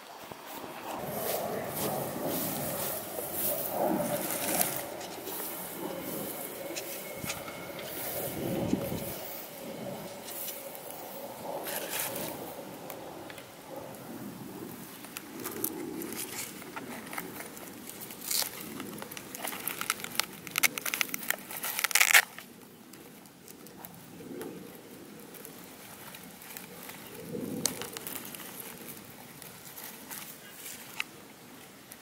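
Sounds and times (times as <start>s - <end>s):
soft rustles: 0.0s - 13.0s
cardboard crackling and crinkling: 0.0s - 32.0s.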